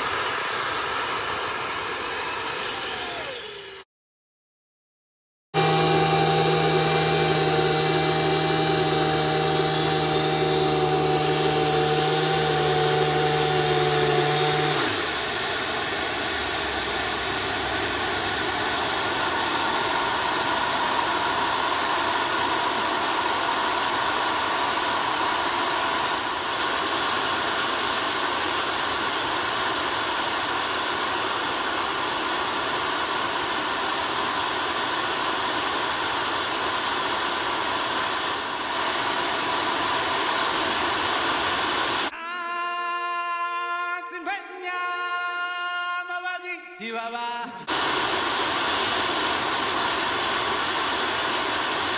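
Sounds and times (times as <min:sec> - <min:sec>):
turbo whine: 0:00.5 - 0:03.8, 0:05.6 - 0:32.6
low hum: 0:05.6 - 0:21.6
jet-like rushing roar: 0:05.6 - 0:25.2.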